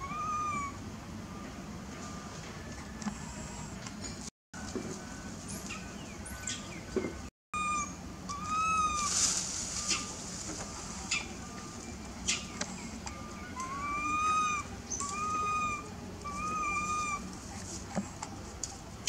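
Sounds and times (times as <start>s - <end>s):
baby monkey crying: 0.0s - 0.8s, 7.6s - 9.1s, 13.3s - 17.3s.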